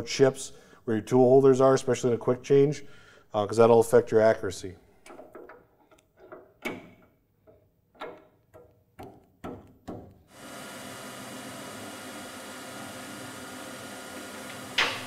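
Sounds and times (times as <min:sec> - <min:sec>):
metal clicks and knocks: 0:05.0 - 0:10.2
lathe machining hum: 0:10.3 - 0:15.0.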